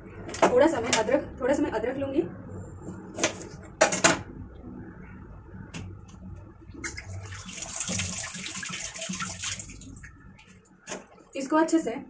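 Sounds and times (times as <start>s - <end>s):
water running: 6.8s - 10.6s.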